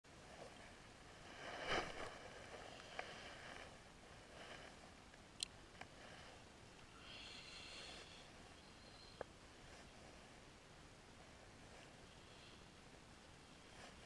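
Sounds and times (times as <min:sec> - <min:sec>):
small sharp clicks: 0:05.1 - 0:05.9.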